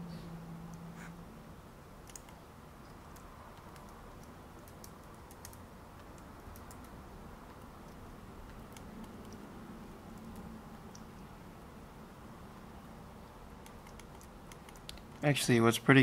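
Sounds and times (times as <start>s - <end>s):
keyboard and mouse clicks: 2.0s - 9.5s, 10.1s - 11.3s, 13.6s - 15.3s.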